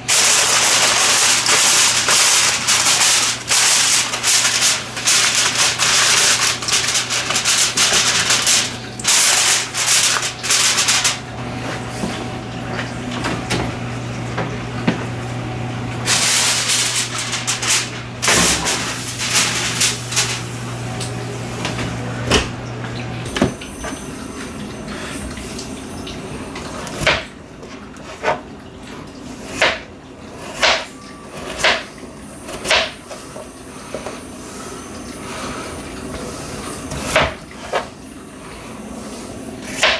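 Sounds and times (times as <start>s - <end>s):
aluminium foil crinkling: 0.0s - 11.3s, 16.1s - 20.6s.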